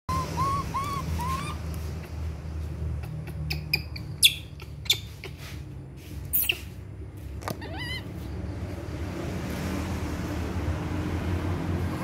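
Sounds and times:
baby monkey squeaking: 0.1s - 2.3s, 2.9s - 5.5s, 6.2s - 6.8s, 7.5s - 8.2s.

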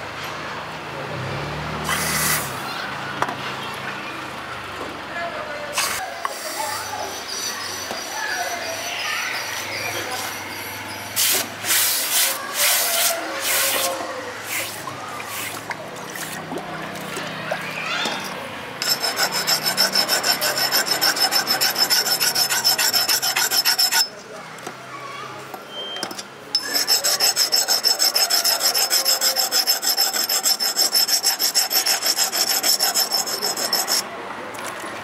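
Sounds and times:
hand file rasping on steel: 18.8s - 24.1s, 26.6s - 34.0s
high ringing steel: 18.8s - 24.2s.

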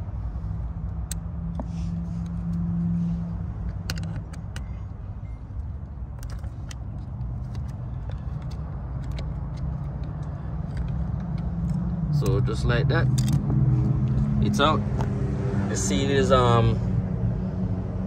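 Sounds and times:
hex key clicking on screws: 6.1s - 11.8s.

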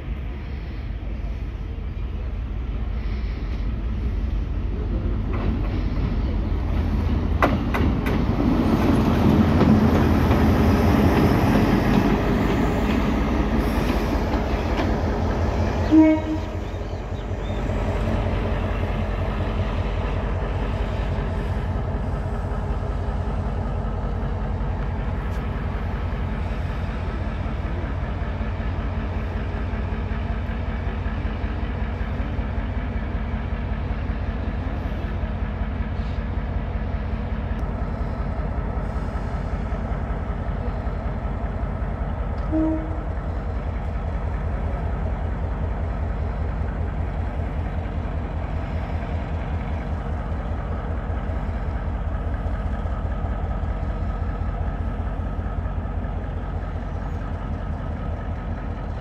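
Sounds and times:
locomotive engine running: 0.0s - 59.0s
locomotive horn toot: 15.8s - 16.8s, 42.4s - 43.1s.

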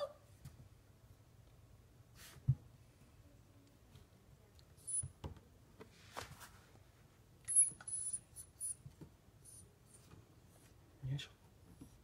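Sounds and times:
puppy high-pitched squeaks: 4.8s - 5.1s, 7.5s - 8.8s.

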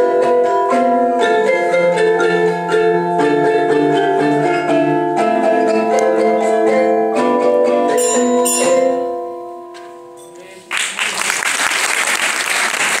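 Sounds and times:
xylophones striking a chord: 0.0s - 10.8s
applause: 10.6s - 13.0s.

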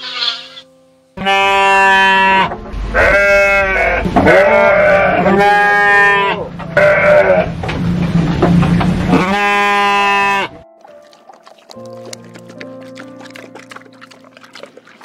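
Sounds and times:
sheep bleating: 0.0s - 0.6s, 1.2s - 7.5s, 9.2s - 10.6s.

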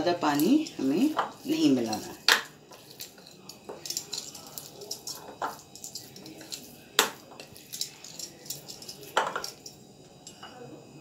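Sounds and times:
metal spoon scraping a bowl: 0.0s - 10.4s
spoon knocking against bowl: 1.0s - 9.8s.

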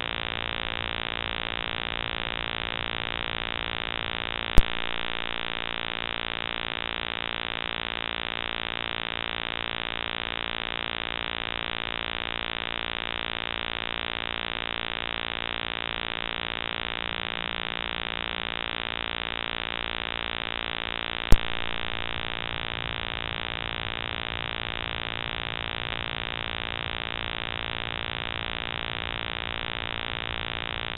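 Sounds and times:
electronic buzz and hiss: 0.0s - 30.9s
sharp click: 4.5s - 5.0s, 21.3s - 21.7s.

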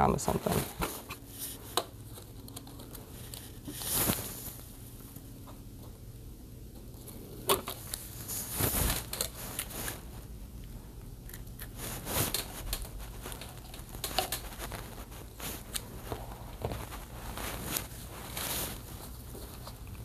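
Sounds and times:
tape crinkling and rustling: 0.7s - 5.6s, 6.7s - 20.0s.

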